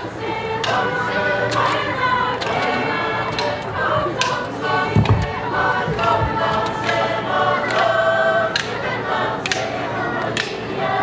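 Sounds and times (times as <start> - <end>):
choir singing: 0.0 - 11.0
sharp knocks keeping beat: 0.6 - 1.8, 2.4 - 7.9.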